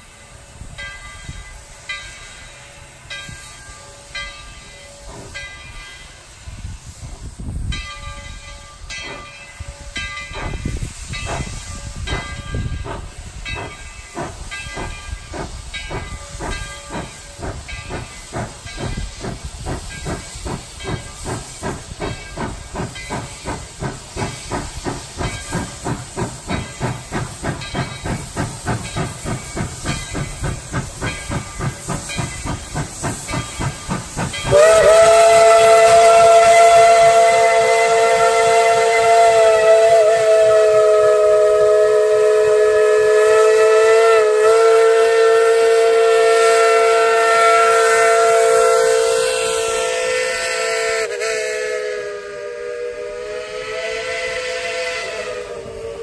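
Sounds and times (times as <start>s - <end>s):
steam locomotive exhaust chuffs: 0.0s - 56.0s
steam whistle blowing: 32.9s - 56.0s.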